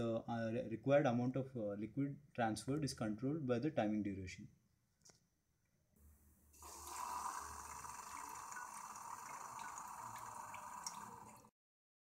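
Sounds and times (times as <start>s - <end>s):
dripping ticks: 6.6s - 11.5s
liquid pouring into frying pan: 6.6s - 11.5s
small pump: 6.6s - 11.5s.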